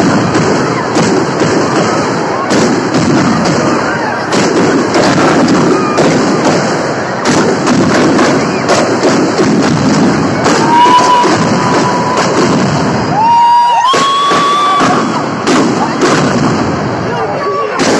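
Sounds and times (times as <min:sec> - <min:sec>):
firecrackers bursting: 0:00.0 - 0:17.9
whistling tone: 0:10.6 - 0:12.3.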